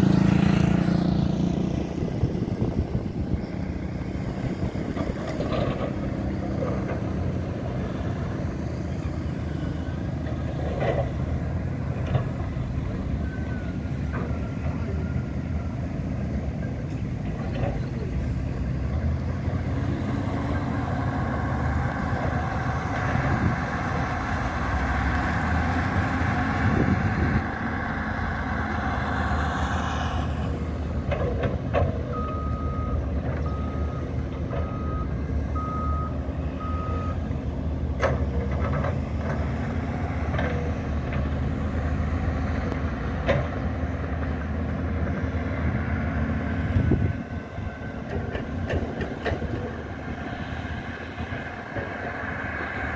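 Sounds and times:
diesel machinery engine drone: 0.0 - 52.9
reversing alarm beeping: 32.1 - 37.2.

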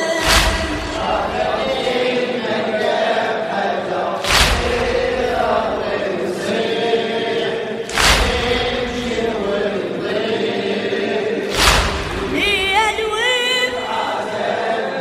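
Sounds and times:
male chorus chanting: 0.0 - 15.0
heavy chest-beating thuds: 4.2 - 6.0, 7.9 - 9.4, 11.5 - 12.4.

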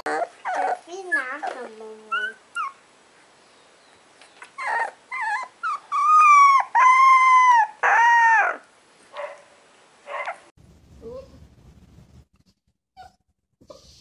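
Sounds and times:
puppy whimpering yelps: 0.0 - 2.8, 4.4 - 8.6
puppy howling: 4.6 - 8.7.

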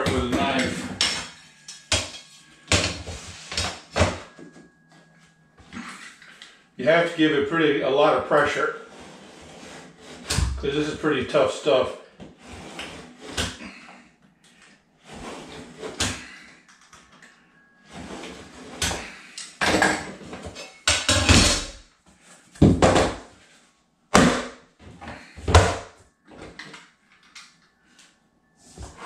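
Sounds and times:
knocks and heavy thumps of plank: 22.6 - 23.3.

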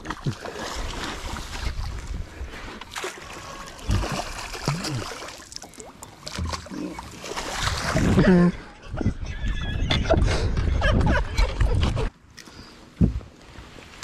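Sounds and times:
water splashing beside boat: 0.0 - 8.5.

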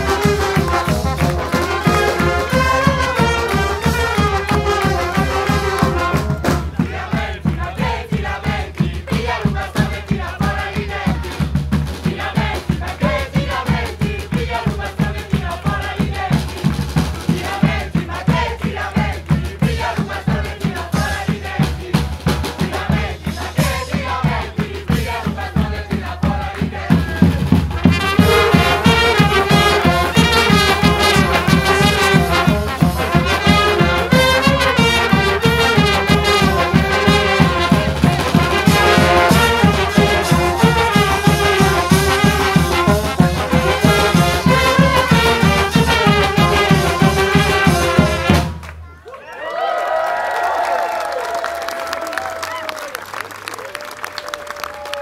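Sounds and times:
steady drum beat: 0.0 - 48.6
brass band playing: 0.0 - 48.7
band members singing: 6.0 - 27.6.

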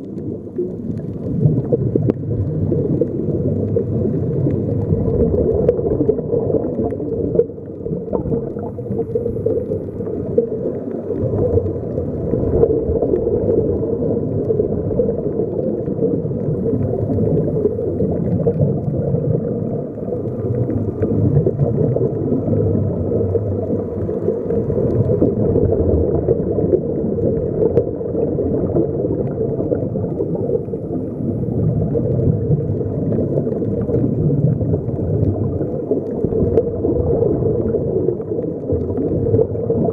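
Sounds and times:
air bubbling underwater: 0.0 - 39.9
muffled underwater rumble: 0.0 - 39.9.

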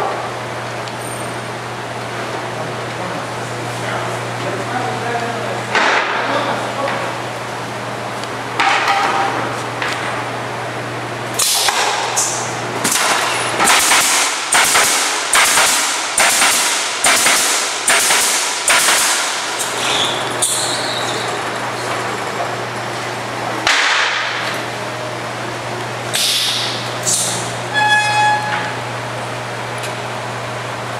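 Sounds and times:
low machine hum: 0.0 - 30.9
pneumatic nailer shots: 11.4 - 20.8, 26.1 - 27.4.

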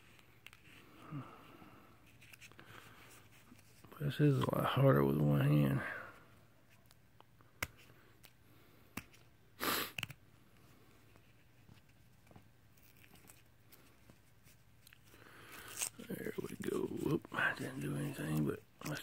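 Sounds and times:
paper wrapper crinkling: 12.7 - 19.0.

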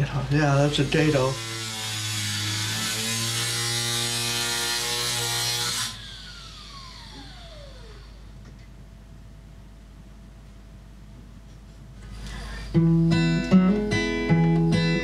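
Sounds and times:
power tool cutting sheet metal: 0.2 - 8.3
motor spinning down whine: 5.9 - 8.4
low steady hum: 6.0 - 15.0.

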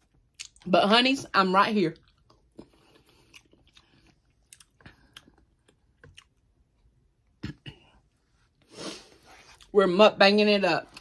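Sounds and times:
person chewing: 0.0 - 0.7, 2.0 - 8.0.

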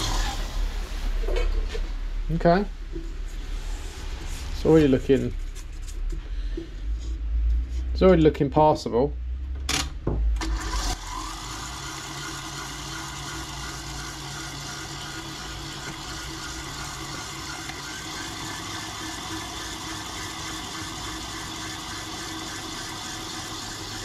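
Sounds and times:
electric mixer whisking: 0.0 - 0.7, 10.4 - 24.0.

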